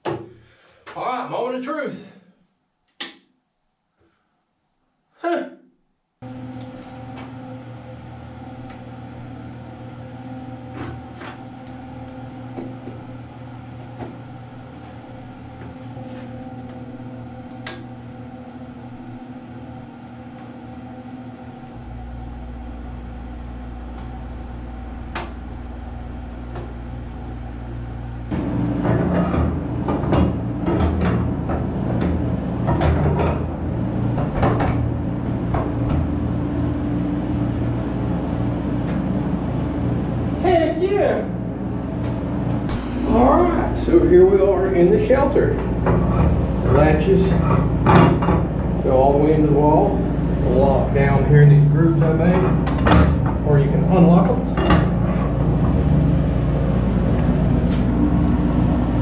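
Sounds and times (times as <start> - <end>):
air conditioner humming: 0.0 - 2.2, 6.2 - 59.0
compressor deep hum: 6.2 - 59.0.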